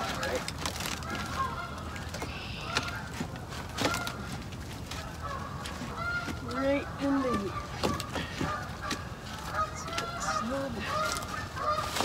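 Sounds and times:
birds calling: 0:00.0 - 0:12.0
wood knocking: 0:07.2 - 0:09.1.

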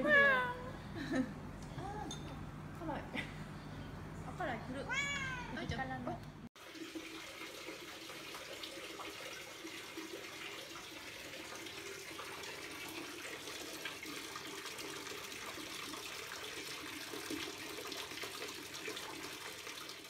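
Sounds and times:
water pouring into bathtub: 0:06.6 - 0:20.0.

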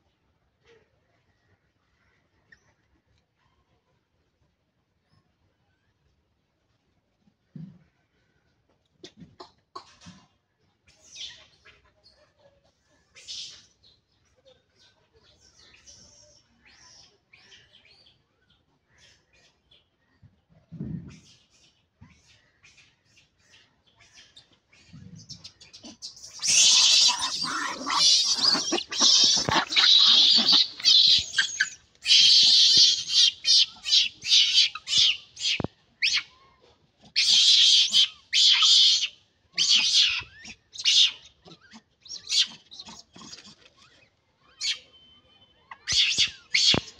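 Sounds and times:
monkeys screeching: 0:25.8 - 0:36.2, 0:37.1 - 0:43.6, 0:45.8 - 0:46.9.

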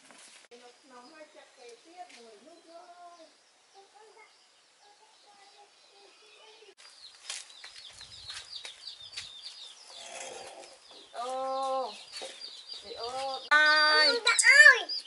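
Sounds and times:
chicks peeping: 0:05.1 - 0:15.0.

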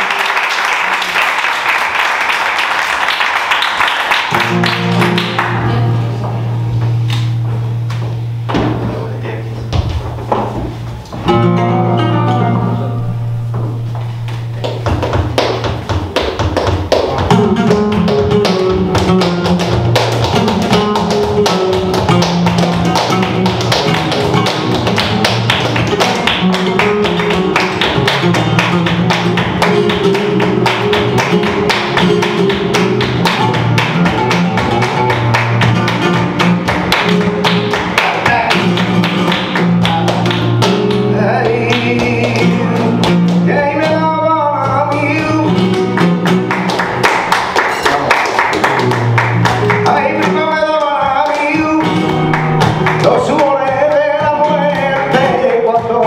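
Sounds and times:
rhythmic hand clapping: 0:00.0 - 0:06.0, 0:14.0 - 0:56.0
flamenco guitar: 0:00.0 - 0:56.0
person singing: 0:37.6 - 0:38.9, 0:39.7 - 0:45.9, 0:49.6 - 0:52.3, 0:53.0 - 0:56.0.

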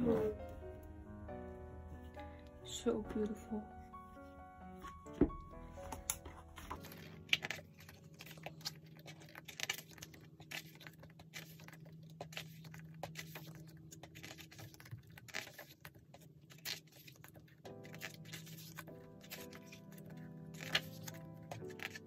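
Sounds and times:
piano music: 0:00.0 - 0:09.9, 0:17.6 - 0:22.0
book pages turning: 0:03.2 - 0:22.0
soft paper rustles: 0:03.2 - 0:22.0.

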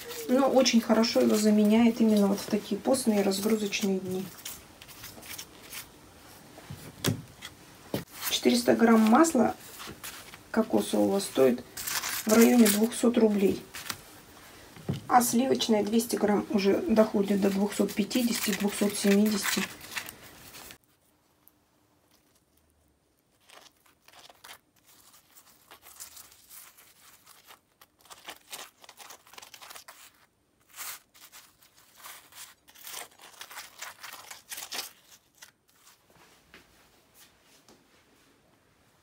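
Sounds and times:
spoon scraping crisp flatbread: 0:11.8 - 0:13.0, 0:23.3 - 0:36.0.

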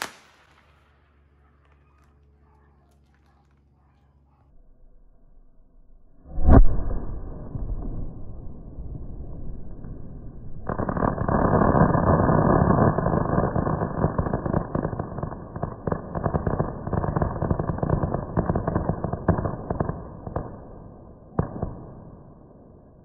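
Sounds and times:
sharp firework crack: 0:00.0 - 0:02.1, 0:06.2 - 0:20.7
firework crackling: 0:00.0 - 0:03.8, 0:09.8 - 0:20.6.

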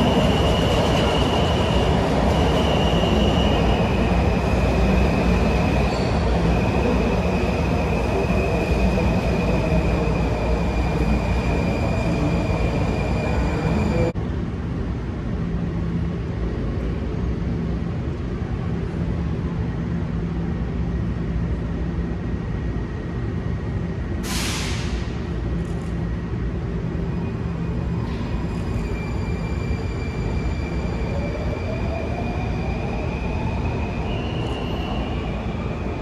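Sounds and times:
train rising whine: 0:00.0 - 0:14.2, 0:26.3 - 0:36.0
train low hum: 0:00.0 - 0:36.0
air brakes hissing: 0:24.2 - 0:25.2.

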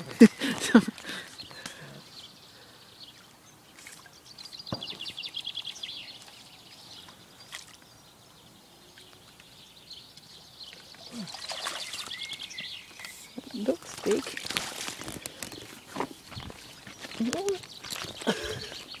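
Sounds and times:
faint water sloshing: 0:00.0 - 0:18.9.

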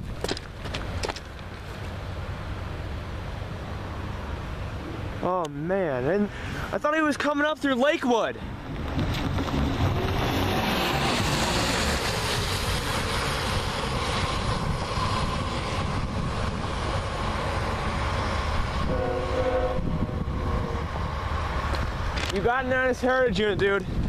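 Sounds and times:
freight train rumbling: 0:00.0 - 0:24.0
wind on microphone: 0:08.6 - 0:22.2, 0:23.4 - 0:24.0
train horn blast: 0:18.8 - 0:20.8.

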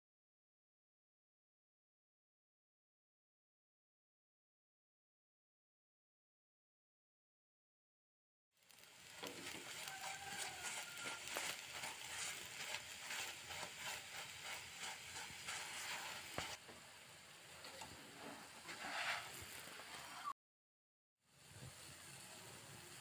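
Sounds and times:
oil sizzling and crackling: 0:08.5 - 0:20.3, 0:21.2 - 0:23.0.

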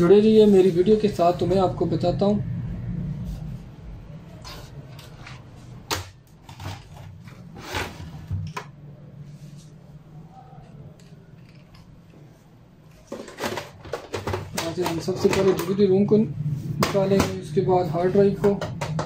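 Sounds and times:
handling noise: 0:10.8 - 0:17.6.

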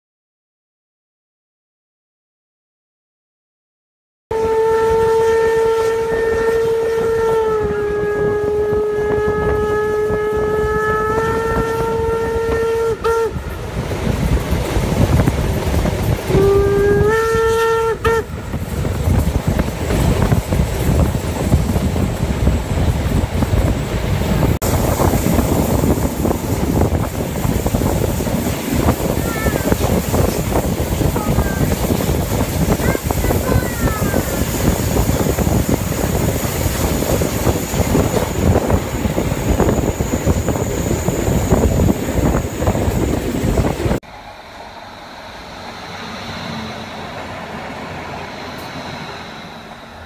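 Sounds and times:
steam locomotive whistle: 0:04.3 - 0:13.6, 0:16.3 - 0:18.6
train wheels rumbling on rail: 0:04.4 - 0:50.0.

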